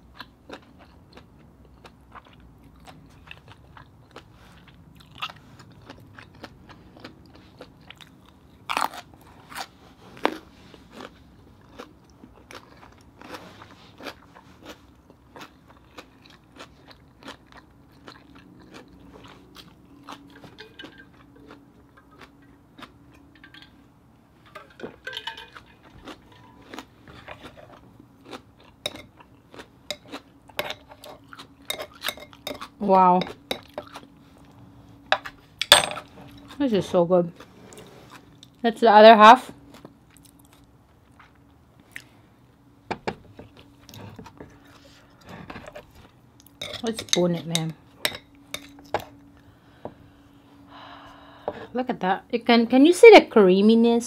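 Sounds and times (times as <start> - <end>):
person chewing: 0.0 - 23.7, 25.3 - 34.6, 39.6 - 42.2, 43.5 - 46.9.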